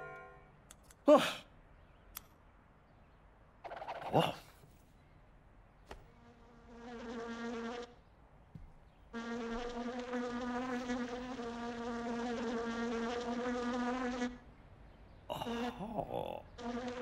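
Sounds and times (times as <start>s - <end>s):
housefly buzzing: 6.1s - 8.0s, 9.1s - 14.4s, 16.5s - 17.0s.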